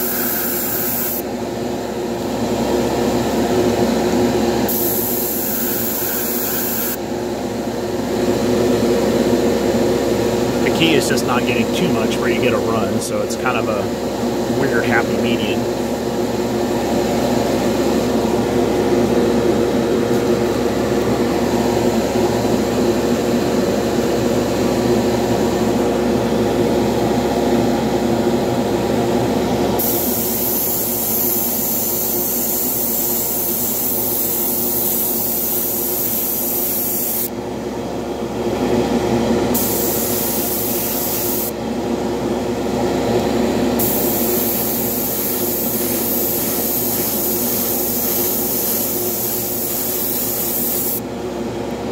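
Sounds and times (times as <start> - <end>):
airbrush spraying hiss: 0.0 - 1.2, 4.7 - 7.0, 29.8 - 37.3, 39.6 - 41.5, 43.8 - 51.0
fan hum: 0.0 - 51.9.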